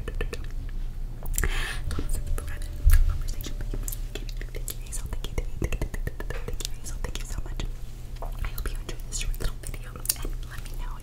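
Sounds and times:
wet mouth clicks: 0.0s - 1.5s, 3.9s - 7.4s, 8.3s - 10.7s
breathy hiss: 1.4s - 5.3s
whispering: 1.8s - 7.7s, 8.4s - 11.0s.

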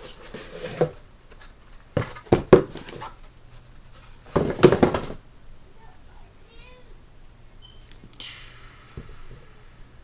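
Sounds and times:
cardboard box knocks and thumps: 2.0s - 3.1s, 4.2s - 5.2s.

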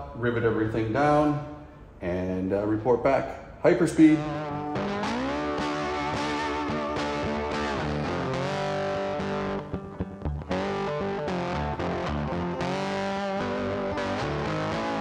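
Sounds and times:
rock music: 4.0s - 15.0s.

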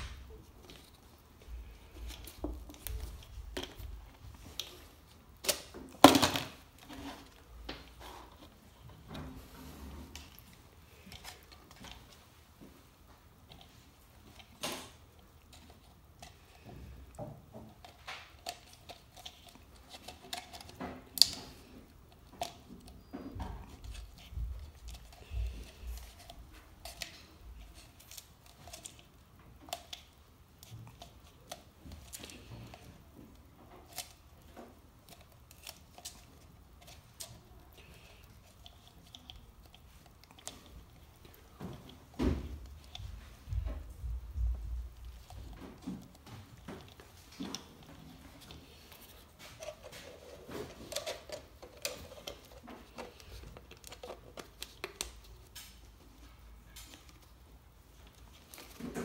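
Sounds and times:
plastic bottle crinkling and clicking: 13.4s - 44.0s, 44.6s - 56.0s.

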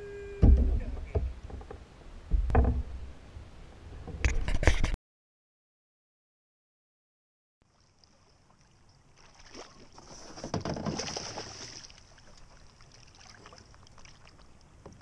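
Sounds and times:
fish thrashing and splashing in water: 7.7s - 14.4s.

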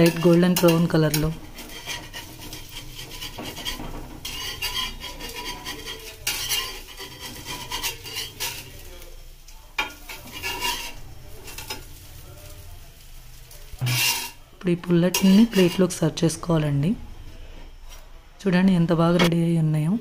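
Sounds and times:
steel spatula scraping pan: 0.0s - 9.0s, 9.8s - 12.6s, 13.4s - 16.4s
batter sizzling in oil: 0.0s - 19.2s.

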